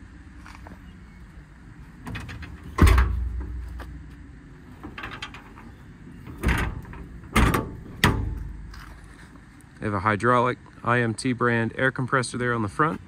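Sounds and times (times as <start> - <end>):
metal doors slamming: 2.0 - 3.6, 4.8 - 8.7.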